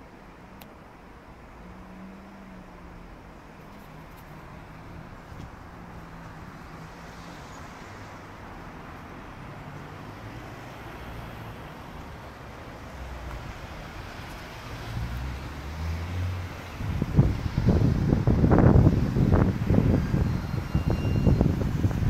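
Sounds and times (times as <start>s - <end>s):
cars humming on street: 0.0s - 22.0s.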